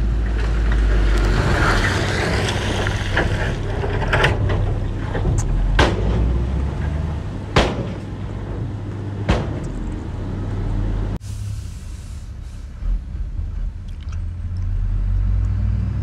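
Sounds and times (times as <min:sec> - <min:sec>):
diesel earthmoving machinery running: 0:00.0 - 0:16.0
sharp knocks: 0:07.6 - 0:08.2, 0:09.2 - 0:10.0.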